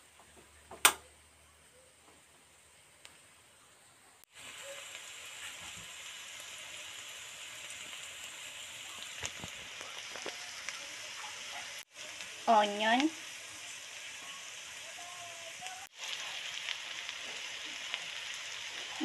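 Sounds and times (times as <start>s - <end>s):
garlic sizzling in butter: 4.2s - 19.0s.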